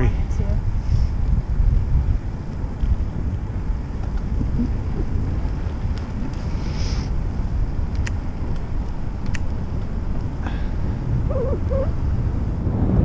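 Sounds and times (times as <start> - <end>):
tyres rumbling on asphalt: 0.0 - 13.0
wind rushing over microphone: 0.0 - 13.0
light ticks: 3.9 - 4.7, 5.5 - 6.5, 7.8 - 10.3.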